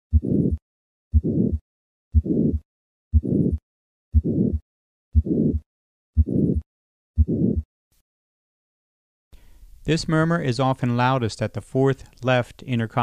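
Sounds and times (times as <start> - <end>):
harsh heart murmur: 0.1 - 3.6, 5.2 - 7.7
heartbeat: 0.1 - 4.6, 5.2 - 7.7.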